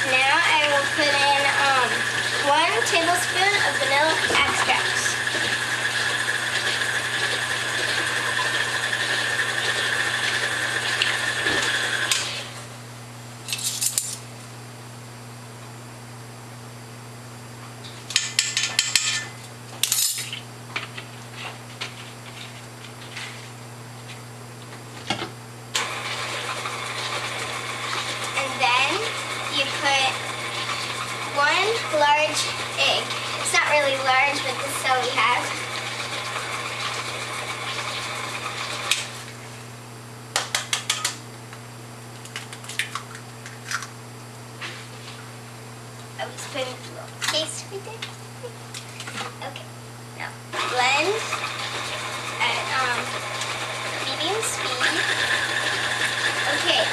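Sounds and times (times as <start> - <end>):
stand mixer running: 0.0 - 12.7, 25.8 - 39.4, 50.5 - 56.9
utensils clinking on metal bowl: 18.2 - 20.4.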